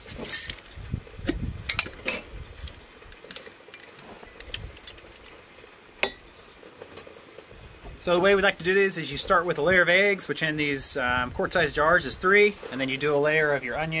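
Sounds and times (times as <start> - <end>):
spices rattling in glass jars: 3.4 - 7.6.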